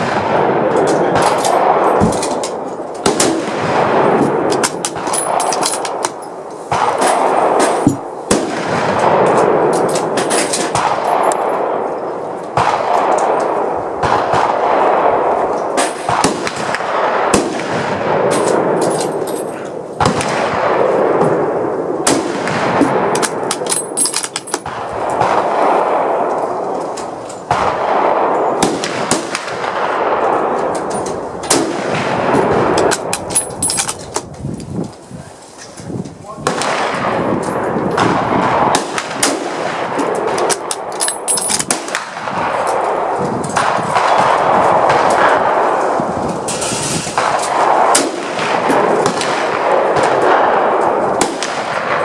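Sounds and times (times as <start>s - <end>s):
rifle shots echoing: 0.0s - 34.3s, 36.3s - 52.0s.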